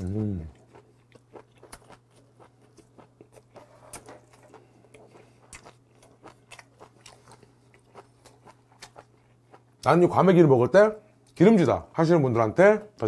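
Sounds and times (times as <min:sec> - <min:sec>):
close chewing with crunches: 0:00.0 - 0:09.8
steady low hum: 0:00.0 - 0:13.0.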